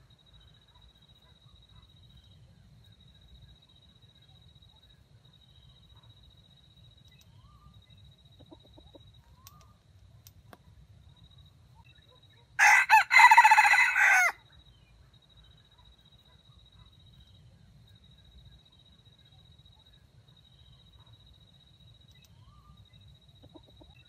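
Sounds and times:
rooster crowing: 12.6 - 14.4.

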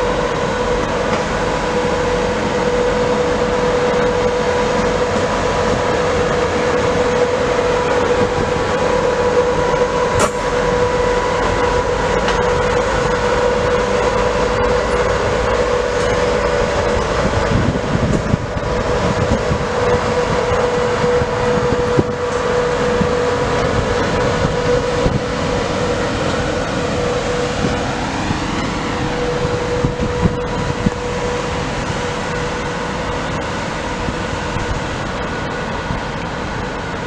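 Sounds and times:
diesel locomotive engine whine: 0.0 - 37.0.

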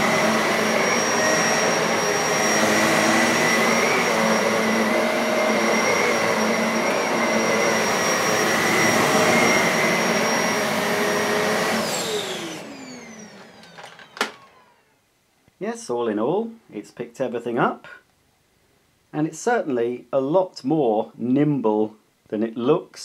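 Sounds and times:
vacuum cleaner motor whine: 0.0 - 15.0.

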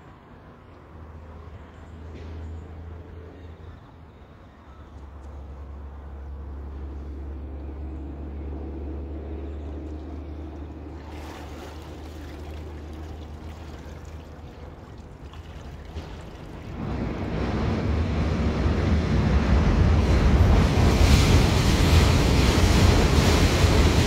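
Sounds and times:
steady low rumble: 4.7 - 15.4, 16.2 - 24.0
water splashing and dripping: 9.8 - 16.8.

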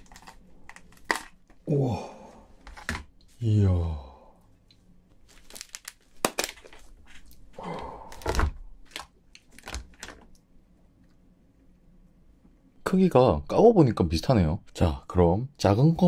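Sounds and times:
crayfish shell cracking: 0.0 - 1.6, 5.3 - 7.4, 8.1 - 10.4.

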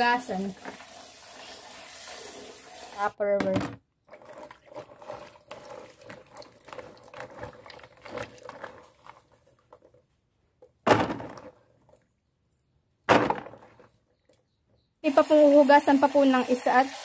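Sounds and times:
wet berries clattering into tub: 3.4 - 12.1, 13.0 - 14.4.

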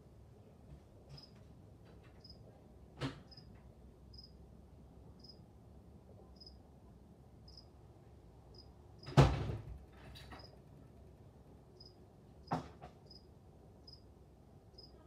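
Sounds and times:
knock: 12.5 - 13.0.

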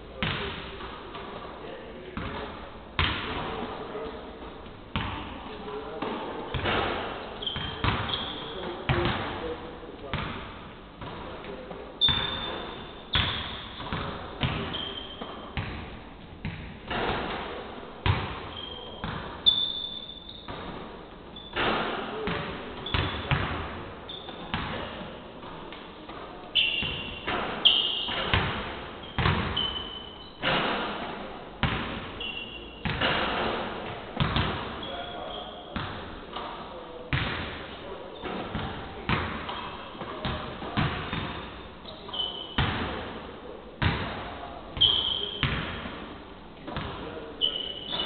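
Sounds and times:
basketballs bouncing on hardwood: 0.2 - 1.4, 6.0 - 8.2, 8.9 - 9.3, 12.0 - 19.4, 21.6 - 23.7, 26.8 - 29.8, 31.6 - 32.1, 32.8 - 34.8, 35.8 - 36.5, 38.2 - 41.5, 43.8 - 44.2, 44.8 - 45.9
sneakers squeaking on floor: 2.2 - 11.3, 11.9 - 43.0, 43.8 - 46.0, 46.6 - 48.0.

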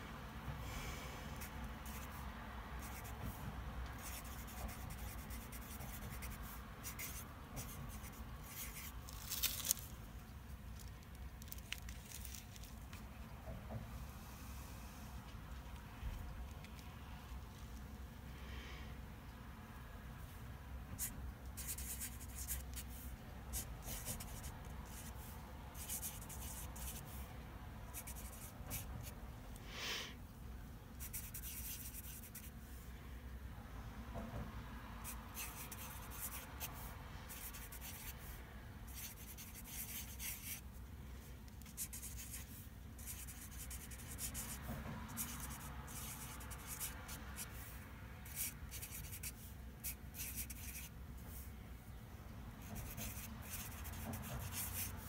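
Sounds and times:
marker scratching on paper: 1.4 - 2.2, 2.8 - 9.2, 21.0 - 27.2, 27.9 - 29.1, 31.0 - 32.5, 35.0 - 40.6, 41.6 - 51.4, 52.6 - 55.0.

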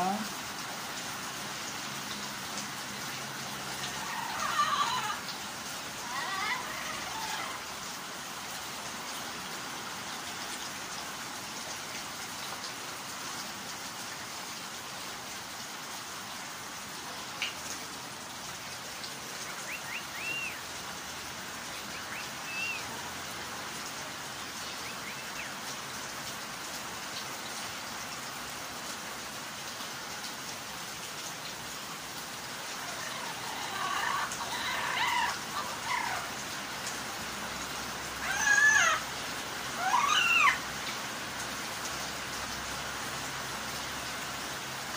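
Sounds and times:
steady hiss like rain: 0.0 - 44.9
parrot calls: 3.8 - 5.3, 6.0 - 7.7, 19.6 - 20.6, 21.9 - 23.0, 32.8 - 36.4, 38.2 - 39.1, 39.8 - 40.6.

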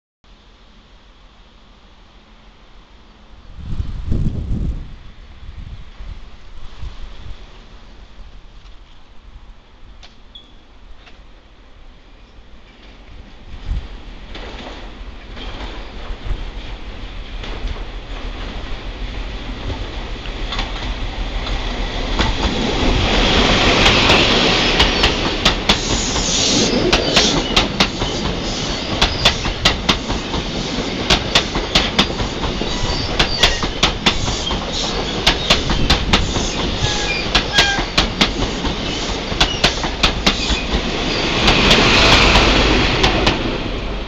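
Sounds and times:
diesel train engine passing: 10.7 - 44.0.

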